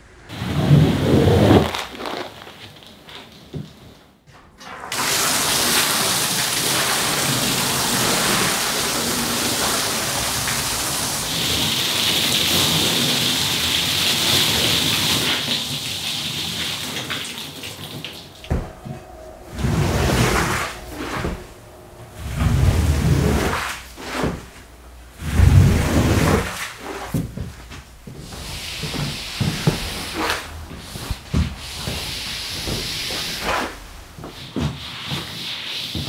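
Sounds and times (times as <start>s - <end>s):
squeegee scraping wet rug: 0.4s - 3.0s, 22.2s - 36.0s.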